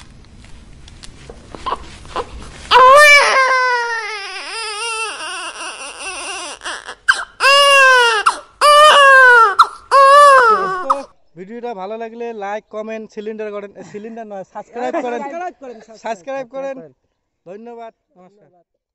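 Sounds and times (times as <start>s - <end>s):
loud crying wails: 1.7s - 11.1s.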